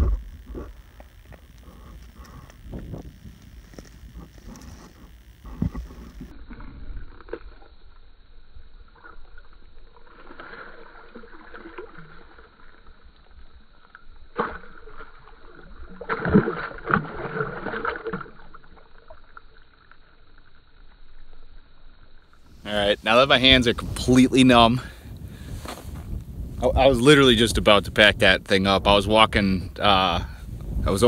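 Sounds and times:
water sloshing and splashing: 8.8s - 19.9s.

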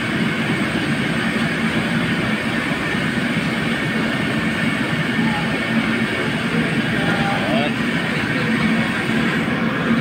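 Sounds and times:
steady rushing noise: 0.0s - 10.0s.

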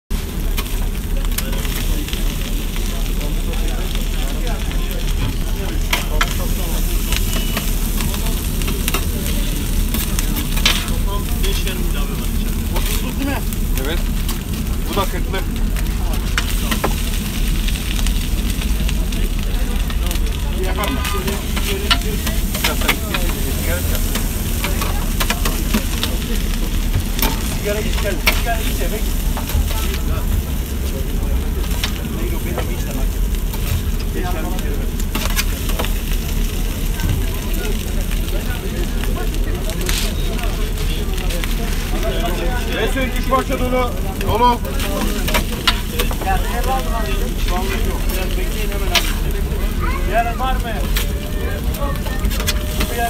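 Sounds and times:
meat sizzling on a griddle: 0.1s - 53.0s
steady low rumble: 0.1s - 53.0s
metal spatula scraping a griddle: 5.7s - 15.2s, 20.6s - 30.1s, 44.7s - 49.6s, 50.8s - 53.0s.

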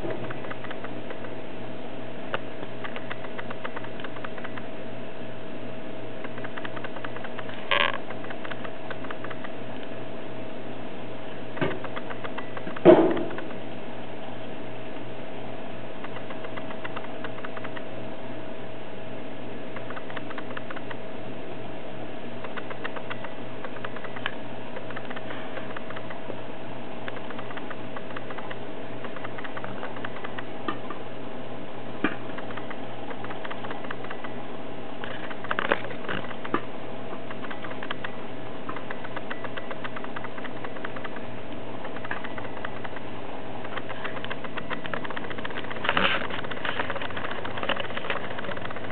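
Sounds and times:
steady hum and hiss: 0.0s - 48.9s
plastic ball rolling clicks: 6.3s - 9.6s, 22.4s - 26.2s, 27.0s - 30.8s, 37.2s - 48.9s
louder knocks: 12.8s - 13.5s
plastic exercise ball rattling: 41.8s - 48.9s.

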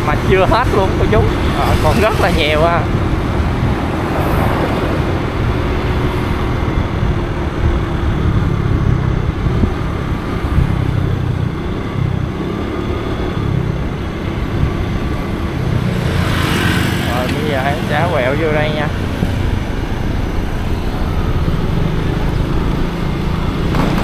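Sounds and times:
vehicle road noise: 0.0s - 24.0s
wind rumbling on microphone: 0.0s - 24.0s.

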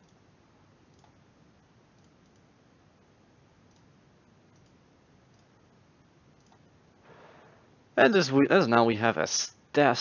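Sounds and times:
computer mouse clicks: 0.0s - 0.2s, 0.9s - 1.2s, 1.9s - 2.5s, 3.7s - 3.9s, 4.5s - 5.5s, 6.4s - 6.7s.

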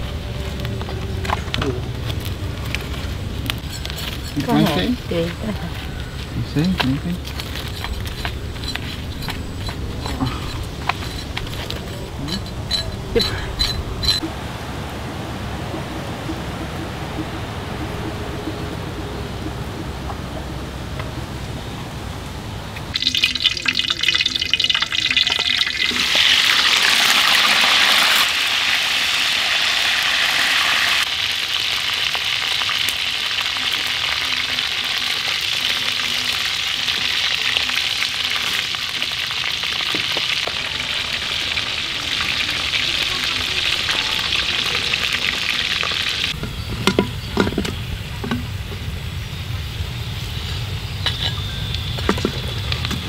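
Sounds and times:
food sizzling in hot oil: 22.9s - 46.4s.

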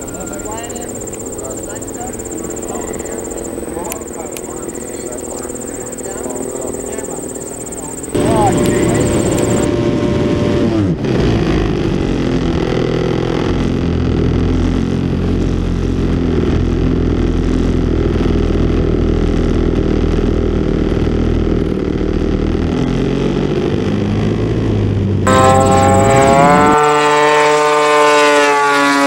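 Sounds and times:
model plane engine running: 0.0s - 9.7s, 25.3s - 28.0s.

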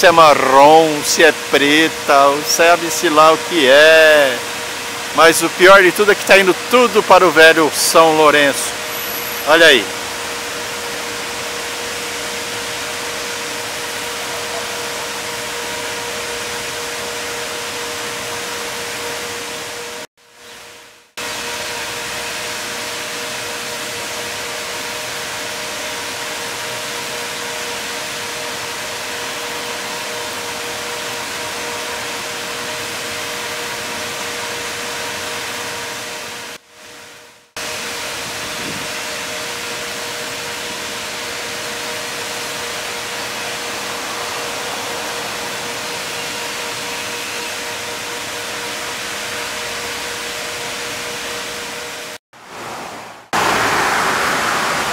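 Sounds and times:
steady hum: 0.0s - 52.2s
water gushing from a pipe: 53.4s - 54.9s.

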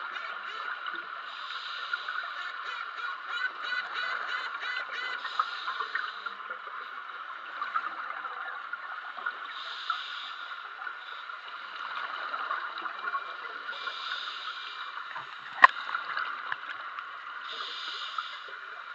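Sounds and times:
scuba regulator hiss: 1.3s - 2.3s, 5.2s - 6.3s, 9.6s - 11.2s, 13.8s - 14.8s, 17.5s - 18.6s.

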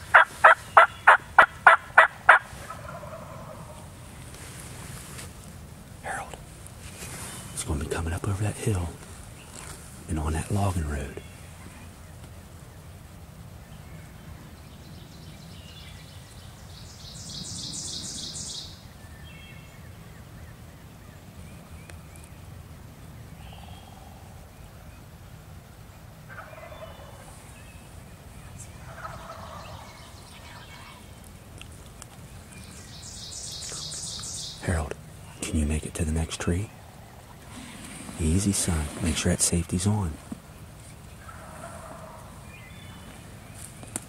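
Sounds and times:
wild turkeys gobbling: 0.0s - 4.1s, 26.2s - 32.8s, 33.5s - 43.3s.

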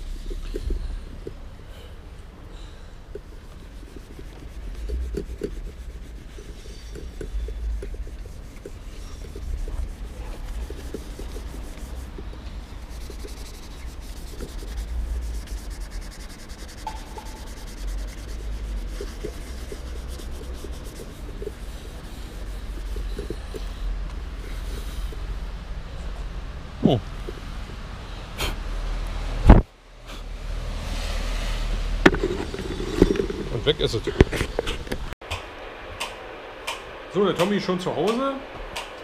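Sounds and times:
steel wool scrubbing ceramic tiles: 3.2s - 25.3s.

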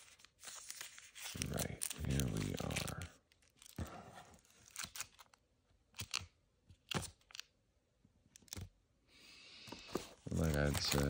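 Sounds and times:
foil packs crinkling: 0.0s - 3.8s, 10.2s - 11.0s.

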